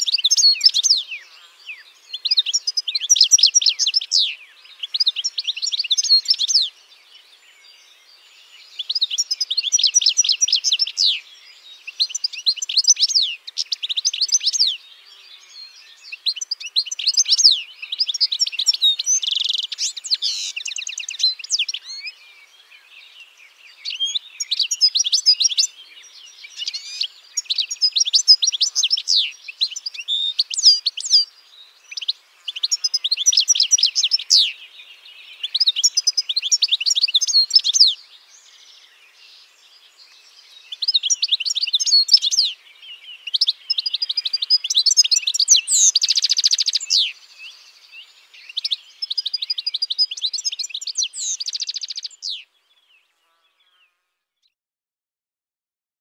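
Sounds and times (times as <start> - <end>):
finch twittering: 43.2 - 47.6.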